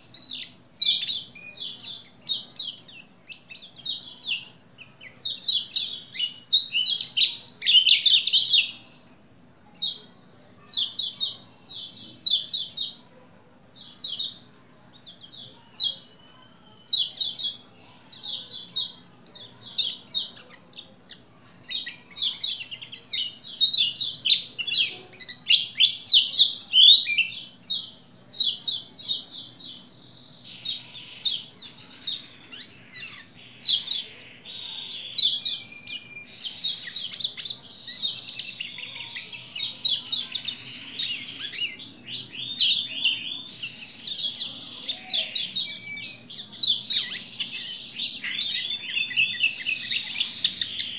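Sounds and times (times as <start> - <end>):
bird chirping song: 0.0 - 50.9.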